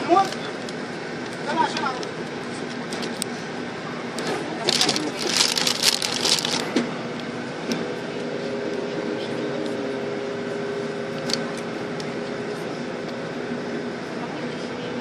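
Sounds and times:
bus engine humming: 0:00.0 - 0:08.0.

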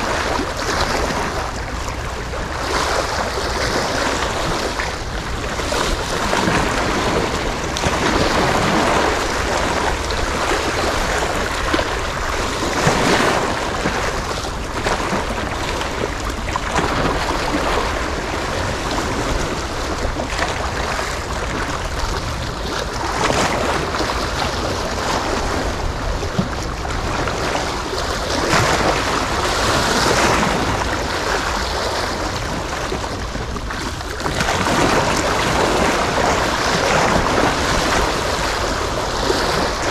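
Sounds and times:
sea waves: 0:00.0 - 0:39.9
wind buffeting microphone: 0:00.0 - 0:39.9.

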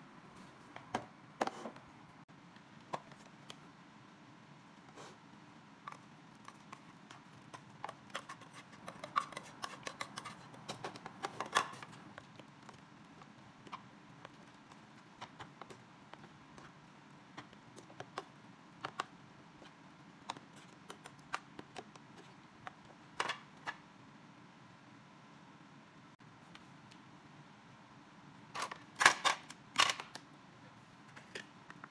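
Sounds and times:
faint room hum: 0:00.0 - 0:31.9.

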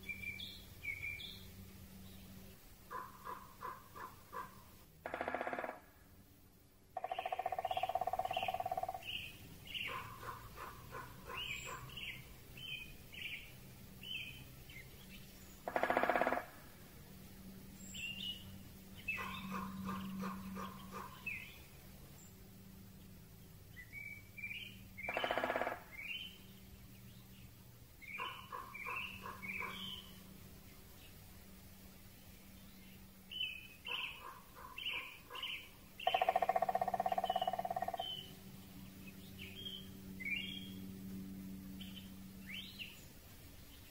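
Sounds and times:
birds singing and chirping: 0:00.0 - 0:05.8, 0:07.0 - 0:16.5, 0:17.7 - 0:21.7, 0:23.7 - 0:30.3, 0:32.5 - 0:43.9
drawn-out bird call: 0:02.9 - 0:05.9, 0:07.0 - 0:13.4, 0:14.0 - 0:16.7, 0:19.0 - 0:21.6, 0:23.9 - 0:26.4, 0:28.0 - 0:30.2, 0:33.3 - 0:38.4
woodpecker drumming on a tree: 0:02.9 - 0:12.9, 0:15.6 - 0:17.0, 0:19.0 - 0:21.6, 0:24.9 - 0:26.4, 0:28.0 - 0:30.1, 0:33.8 - 0:38.8.

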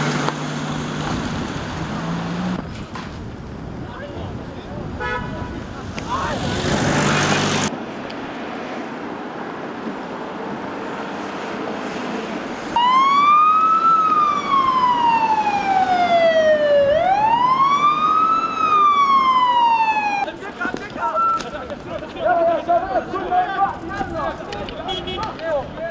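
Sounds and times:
ambulance siren wailing: 0:12.8 - 0:20.3.

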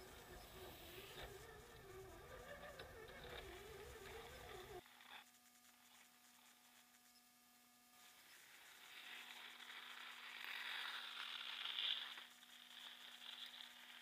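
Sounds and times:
tyres churning through snow: 0:00.0 - 0:04.8
electric motor and gear whine: 0:00.0 - 0:14.0
faint steady hum: 0:00.0 - 0:14.0.

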